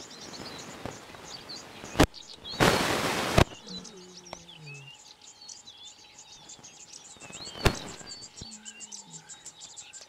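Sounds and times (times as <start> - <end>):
small birds chirping: 0.0 - 10.0.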